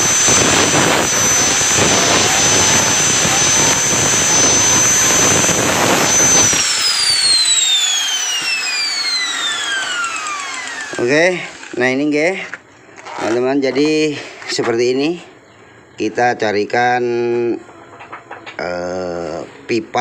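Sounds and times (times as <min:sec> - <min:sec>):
grinder disc spinning down: 0:00.0 - 0:12.3
angle grinder on metal: 0:00.0 - 0:14.1.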